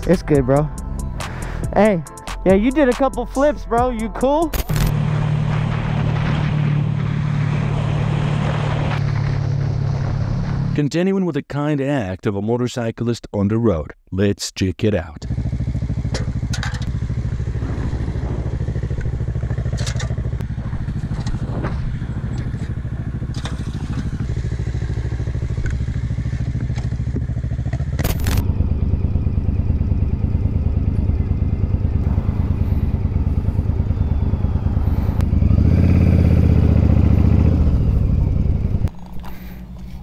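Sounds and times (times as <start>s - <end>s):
motorcycle engine running: 0.0s - 10.8s, 15.2s - 40.0s
sharp clicks: 4.4s - 4.9s.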